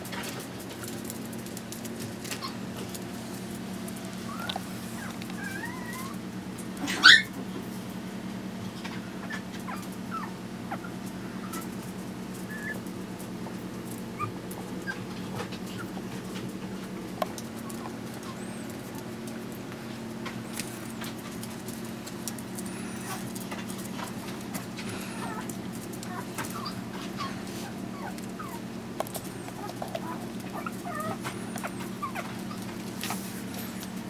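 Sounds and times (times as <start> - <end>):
puppies whimpering: 3.8 - 7.4, 9.2 - 11.8, 12.4 - 12.8, 14.1 - 16.5, 17.3 - 19.6, 22.3 - 34.0.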